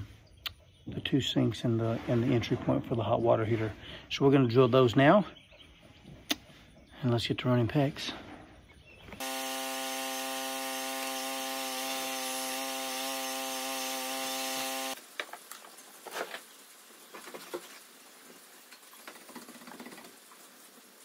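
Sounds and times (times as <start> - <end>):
electric drill boring into wood: 9.2 - 15.0.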